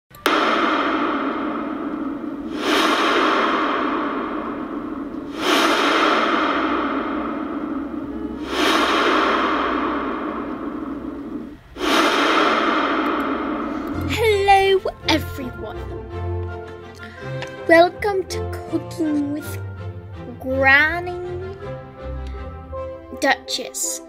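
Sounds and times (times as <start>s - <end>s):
swooshing burst with echo: 0.1s - 15.9s.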